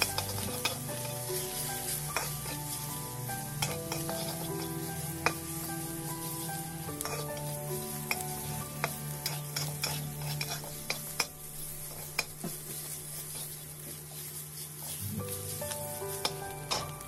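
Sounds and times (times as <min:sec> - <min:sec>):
meat sizzling in a wok: 0:00.0 - 0:17.0.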